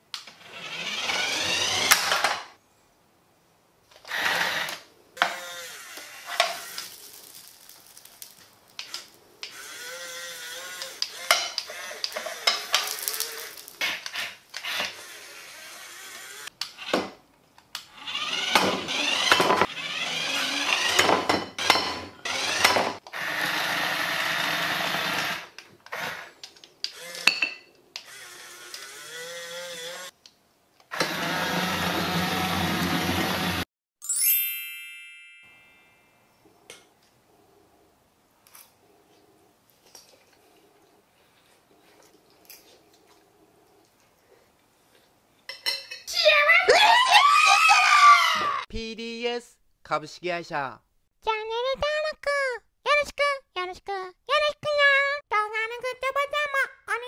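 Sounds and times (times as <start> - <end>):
toy electric motors whining: 0.2 - 2.4, 4.0 - 17.0, 17.8 - 27.4, 28.0 - 30.2, 30.9 - 33.6.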